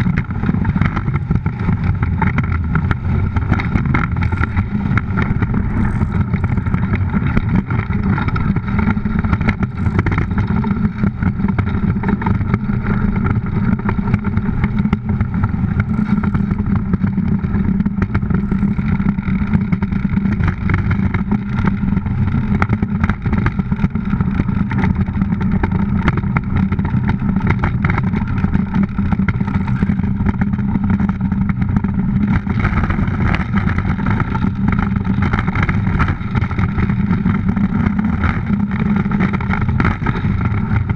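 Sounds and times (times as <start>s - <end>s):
iceboat runners rumbling on ice: 0.0s - 40.9s.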